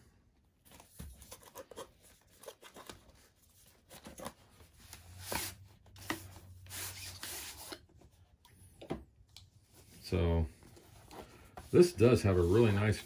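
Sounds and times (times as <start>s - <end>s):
mat sliding against cardboard: 9.8s - 13.0s.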